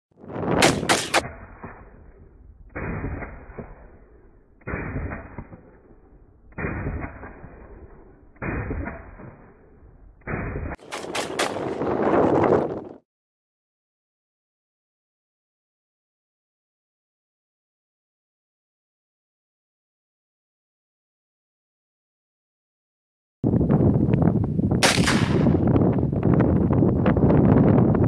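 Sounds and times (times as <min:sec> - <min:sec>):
slowed-down gunshot booms: 0:00.4 - 0:12.1, 0:24.8 - 0:25.9
rifle shots: 0:00.5 - 0:09.6, 0:10.2 - 0:11.9, 0:24.8 - 0:25.6.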